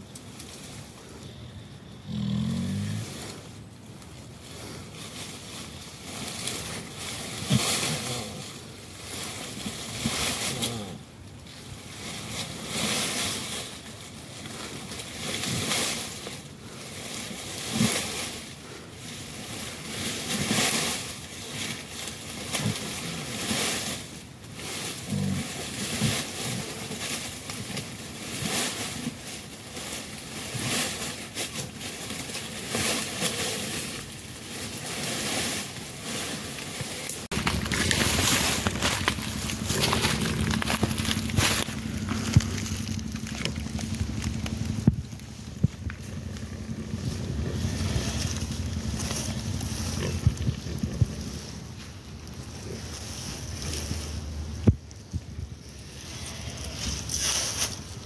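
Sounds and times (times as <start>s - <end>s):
wet squelching and tearing: 37.2s - 46.9s.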